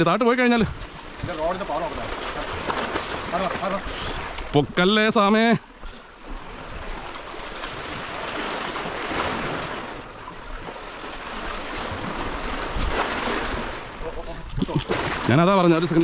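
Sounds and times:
sea waves washing against breakwater: 0.0s - 16.0s.

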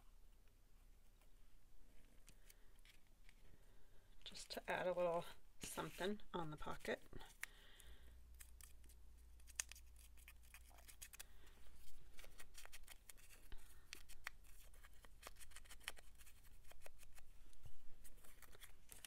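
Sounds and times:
paper clicks and rustles: 8.4s - 17.3s, 18.0s - 19.0s.

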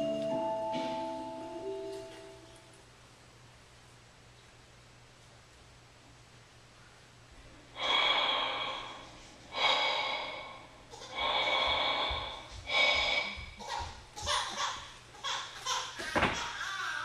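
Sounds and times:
heavy breathing: 7.4s - 14.6s.

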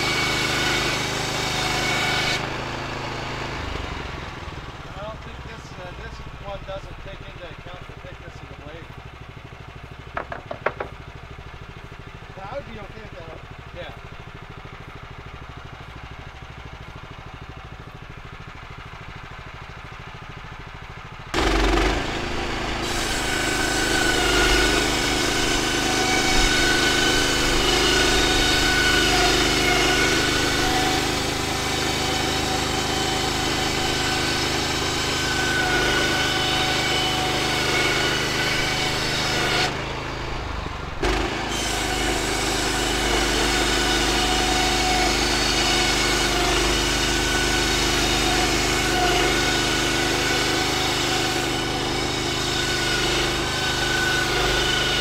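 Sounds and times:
band saw blade whine: 0.0s - 20.4s, 21.3s - 55.0s
gasoline engine running: 0.0s - 49.0s.

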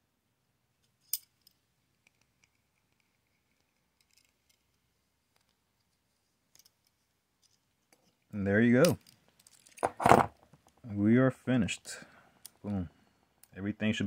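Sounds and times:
small metal clicks and scrapes: 1.0s - 5.6s.

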